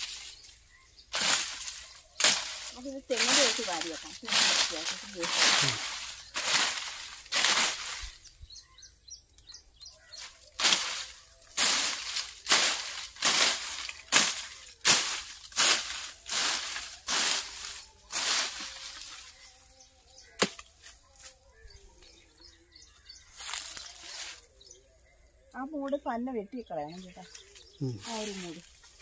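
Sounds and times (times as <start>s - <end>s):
machete swishing through undergrowth: 1.1s - 8.3s, 10.1s - 19.5s.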